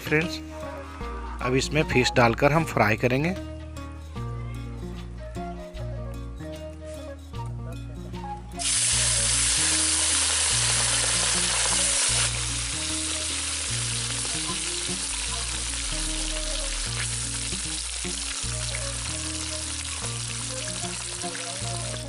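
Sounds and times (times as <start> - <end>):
background music with slow bass: 0.0 - 22.0
fish sizzling in hot oil: 8.6 - 22.0.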